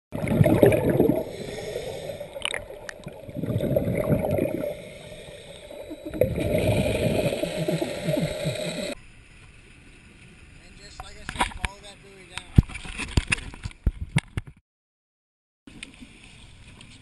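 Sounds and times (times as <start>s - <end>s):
water gurgling and bubbling: 0.1s - 9.0s.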